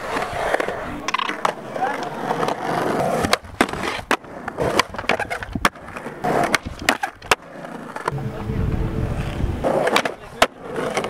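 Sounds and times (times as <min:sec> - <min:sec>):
skateboard clacks on coping: 0:00.0 - 0:08.1
skateboard wheels rolling on concrete: 0:00.0 - 0:11.0.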